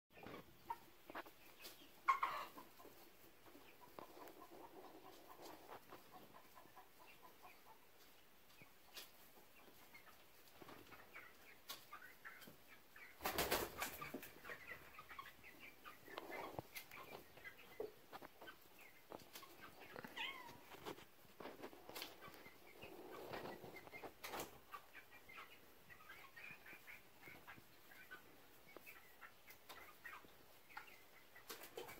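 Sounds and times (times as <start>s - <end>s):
chickens clucking: 0.1s - 31.9s.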